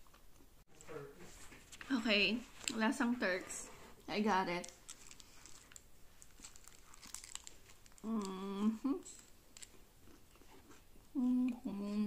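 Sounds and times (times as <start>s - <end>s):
paper wrapper crinkling: 4.6s - 8.5s
person chewing: 4.7s - 12.0s.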